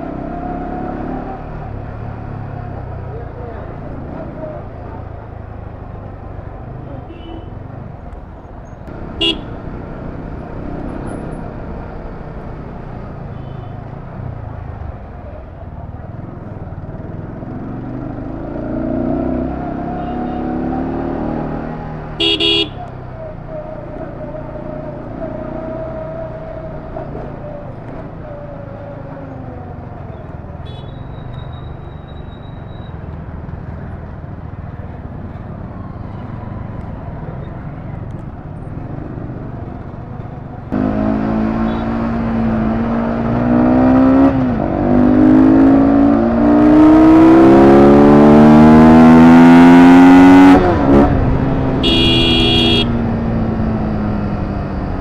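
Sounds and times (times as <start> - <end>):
motorcycle engine: 8.6 - 55.0
vehicle horn double beep: 9.2 - 9.6, 22.2 - 22.9, 30.7 - 33.0, 41.6 - 41.9, 51.8 - 53.0.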